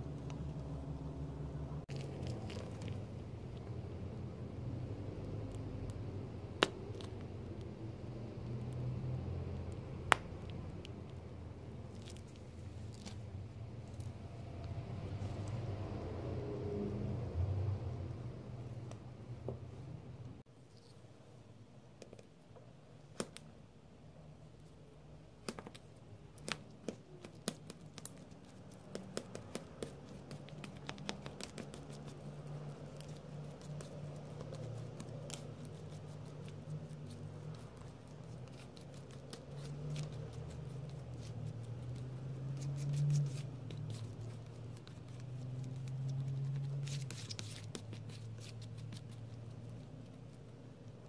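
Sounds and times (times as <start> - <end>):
palette knife tapping and scraping: 26.4 - 50.2
paint smearing: 26.4 - 51.0.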